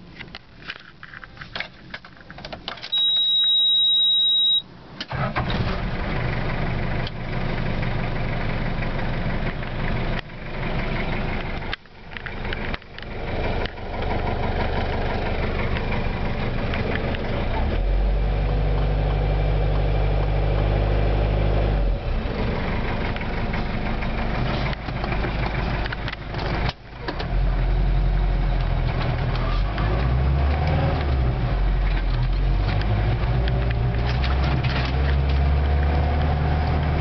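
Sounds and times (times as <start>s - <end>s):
loud high beep: 2.9s - 4.7s
van engine running: 4.8s - 37.0s.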